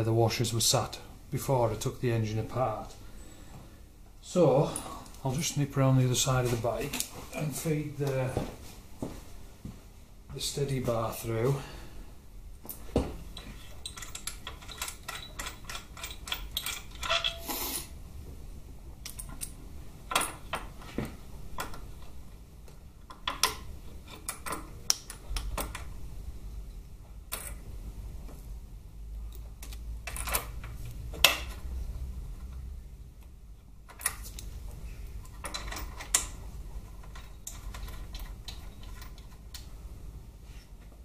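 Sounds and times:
small metal parts clinking: 0:13.4 - 0:17.5, 0:35.2 - 0:36.3.

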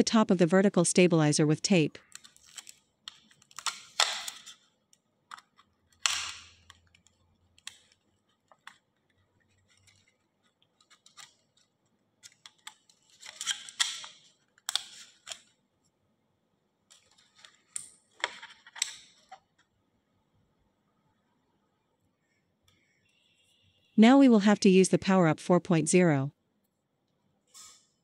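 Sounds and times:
aluminum sheet crinkling: 0:02.0 - 0:15.6, 0:16.9 - 0:19.7.

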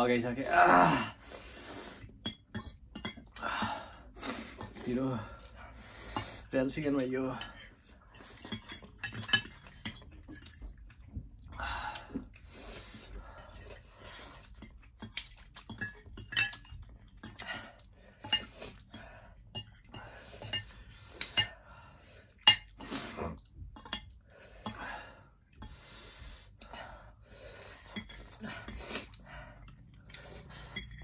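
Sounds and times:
forks clinking on plates: 0:08.3 - 0:10.6.

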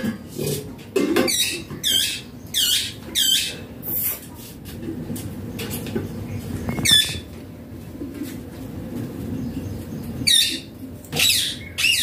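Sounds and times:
parakeet squawking: 0:01.3 - 0:03.6, 0:06.7 - 0:07.3, 0:10.2 - 0:12.0.

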